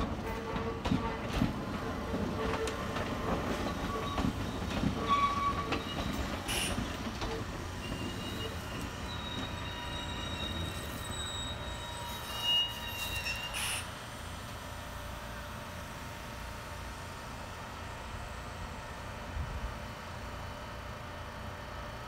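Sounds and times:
train wheels clicking over rail joints: 0.0s - 9.6s
high-pitched wheel squeal: 3.5s - 6.9s, 7.8s - 13.9s.

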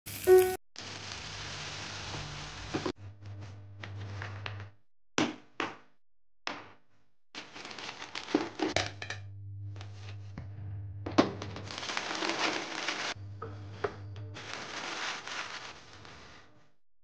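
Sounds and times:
crinkling: 7.4s - 8.8s, 11.4s - 13.2s, 14.4s - 16.5s
low hum: 8.8s - 12.1s, 13.1s - 14.6s.

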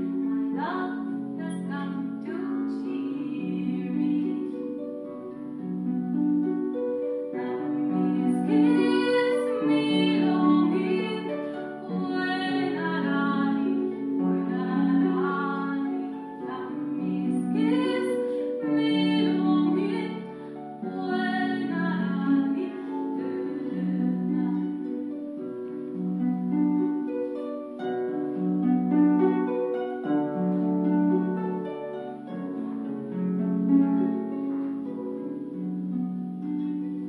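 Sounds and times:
harp playing: 0.0s - 37.0s
woman singing: 0.2s - 4.8s, 7.4s - 25.1s.

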